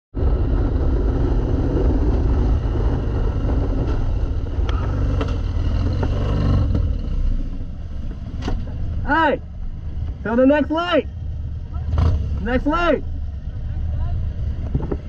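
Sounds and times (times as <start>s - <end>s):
wind noise: 0.1s - 10.2s, 14.2s - 15.0s
road noise: 0.1s - 15.0s
motorcycle engine rumbling: 0.2s - 15.0s.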